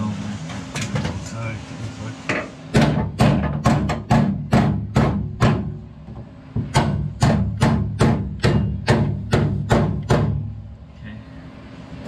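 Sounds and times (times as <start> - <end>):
hammer striking sheet steel: 2.3 - 5.8, 6.6 - 10.6.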